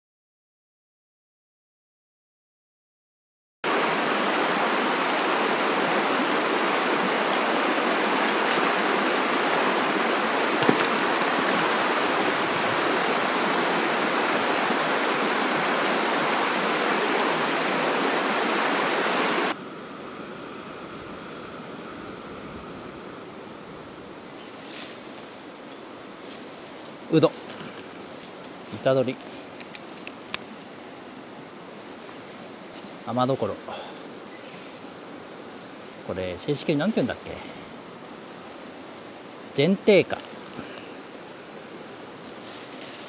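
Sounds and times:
stream rushing over rocks: 0:03.7 - 0:19.6.

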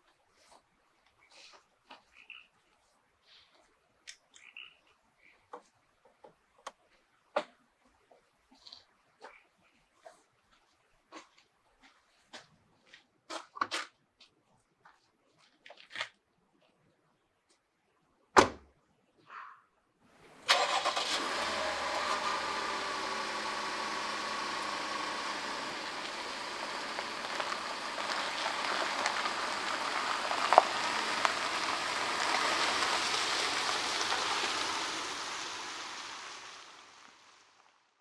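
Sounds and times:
car engine cranking and running: 0:20.4 - 0:37.3.

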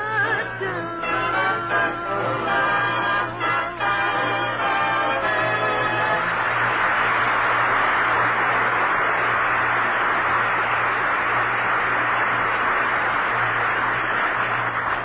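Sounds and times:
audience applauding: 0:00.1 - 0:15.0.

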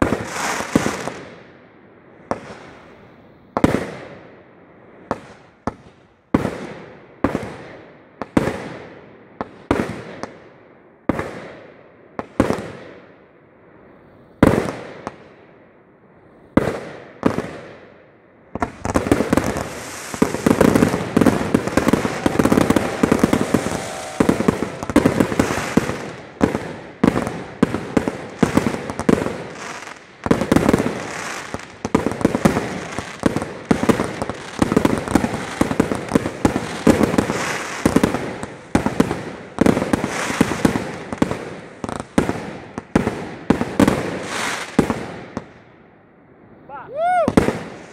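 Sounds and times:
firework bangs echoing: 0:00.0 - 0:01.4, 0:18.6 - 0:45.5, 0:47.2 - 0:47.9
rapid firework bursts and crackles: 0:00.0 - 0:01.6, 0:05.0 - 0:10.5, 0:16.5 - 0:45.7, 0:46.7 - 0:47.9
continuous firework hiss: 0:00.0 - 0:47.9.

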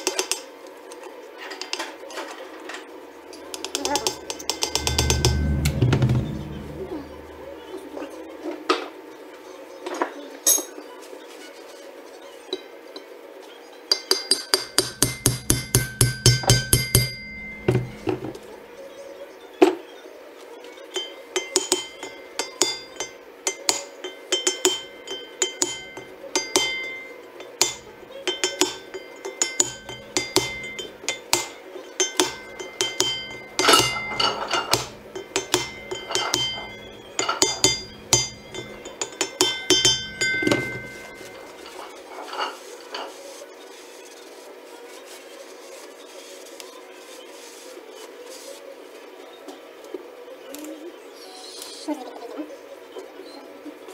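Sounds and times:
hammer tapping metal punch: 0:14.6 - 0:18.4, 0:21.4 - 0:41.8.

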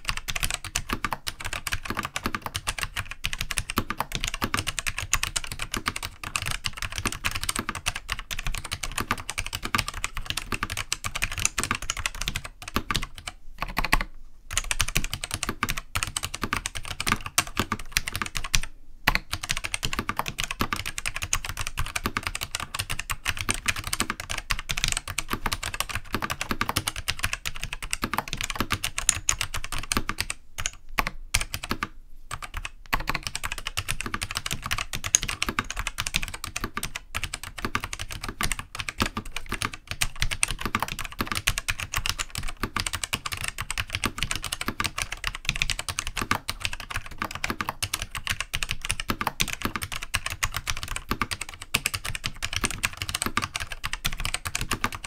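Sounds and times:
fast keyboard typing: 0:00.0 - 0:55.0.

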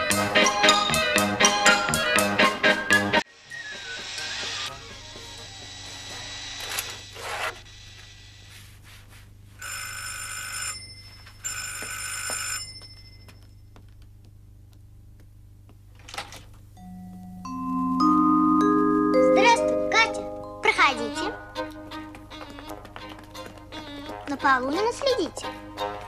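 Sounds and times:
electric doorbell ringing: 0:16.8 - 0:20.7.

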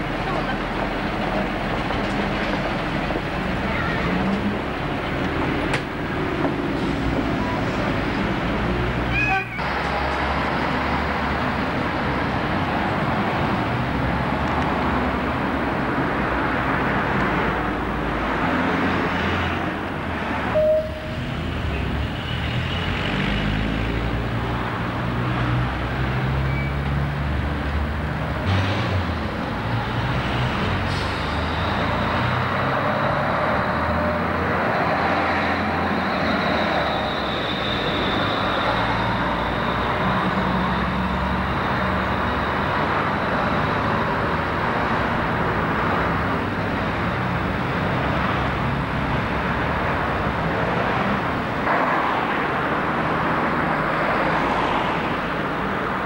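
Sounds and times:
bus diesel engines running: 0:00.0 - 0:56.0
traffic noise: 0:00.0 - 0:56.0.

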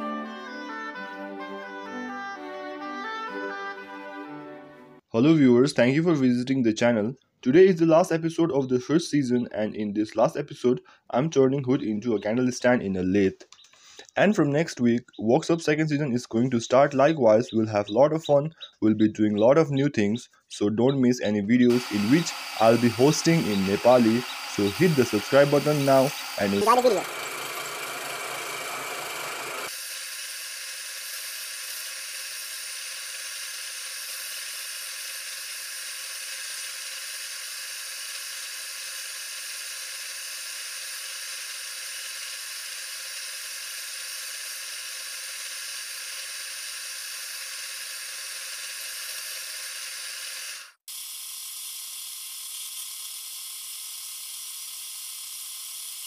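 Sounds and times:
chisel shaving wood: 0:21.7 - 0:56.0
wood lathe whirring: 0:21.7 - 0:56.0.

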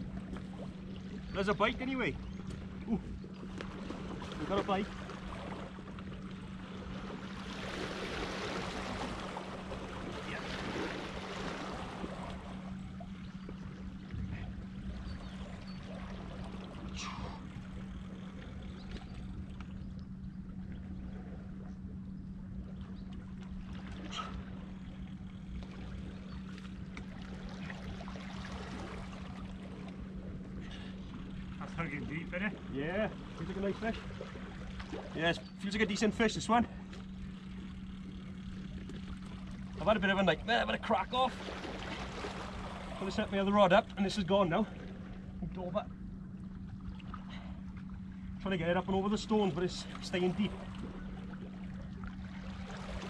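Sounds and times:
steady low hum: 0:00.0 - 0:53.0
waves lapping against rocks: 0:38.8 - 0:43.8.

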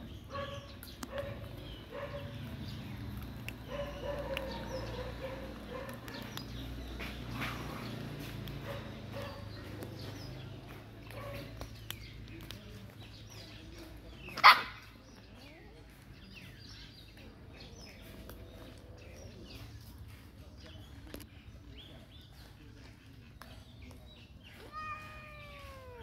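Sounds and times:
dog barking: 0:00.3 - 0:02.6, 0:03.6 - 0:06.4, 0:08.6 - 0:09.8, 0:11.1 - 0:11.5, 0:14.4 - 0:14.9.

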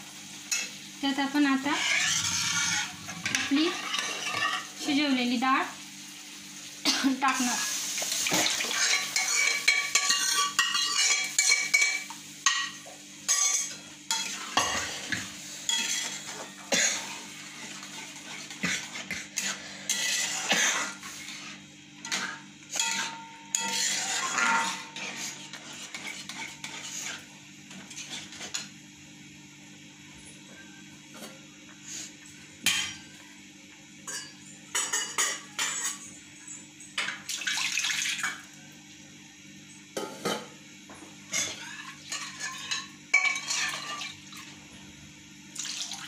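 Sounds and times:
steel ladle scraping metal pans: 0:01.6 - 0:04.7, 0:08.5 - 0:16.4, 0:17.6 - 0:27.2, 0:41.3 - 0:44.1.

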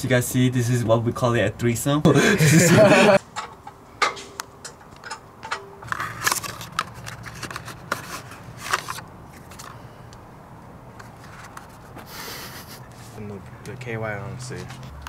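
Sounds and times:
clicks and scrapes: 0:04.1 - 0:09.8
paper packaging rustling: 0:05.8 - 0:09.8.

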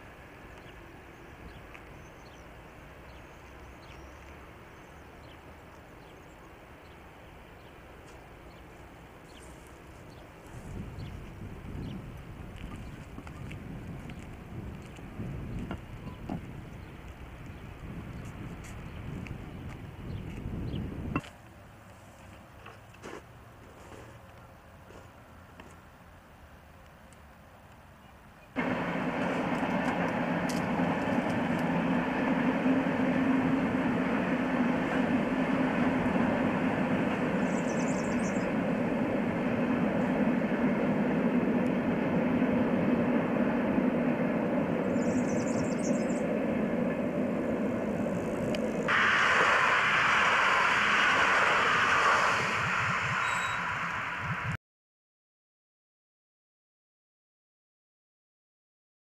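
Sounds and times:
train wheels rumbling on rails: 0:00.0 - 0:21.3, 0:28.6 - 0:54.6
loud hissy noise: 0:28.6 - 0:54.6.

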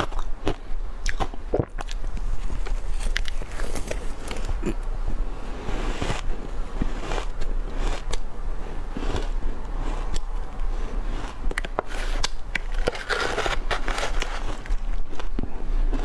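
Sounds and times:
spoon scraping shaved ice: 0:08.9 - 0:15.0
chewing: 0:08.9 - 0:16.0.

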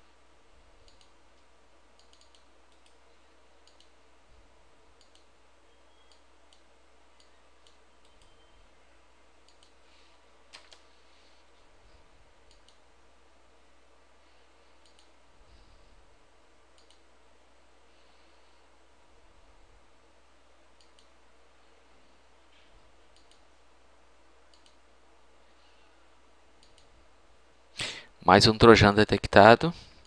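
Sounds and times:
low steady hum: 0:00.0 - 0:30.0
computer mouse clicks: 0:00.8 - 0:03.0, 0:03.6 - 0:04.0, 0:05.0 - 0:05.3, 0:06.0 - 0:08.4, 0:09.4 - 0:09.8, 0:10.5 - 0:10.9, 0:12.4 - 0:12.9, 0:14.8 - 0:15.2, 0:16.7 - 0:17.1, 0:20.8 - 0:21.2, 0:23.1 - 0:23.5, 0:24.5 - 0:24.8, 0:26.6 - 0:27.0.

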